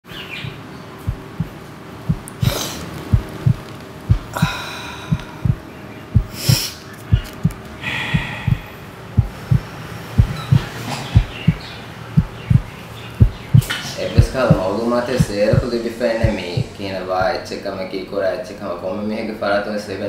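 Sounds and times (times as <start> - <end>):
heartbeat double thump: 0.4 - 11.6, 12.2 - 17.4
hard snorts through nose: 2.4 - 2.9.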